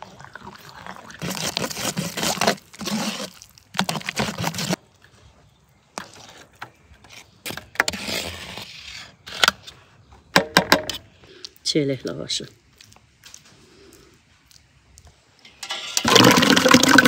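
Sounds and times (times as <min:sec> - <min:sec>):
wet pulp scraping from bowl: 0:00.0 - 0:04.8.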